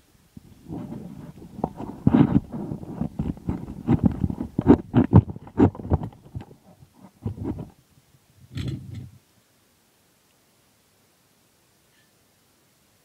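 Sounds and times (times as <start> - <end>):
plastic spatula scraping a frying pan: 0.6 - 7.7.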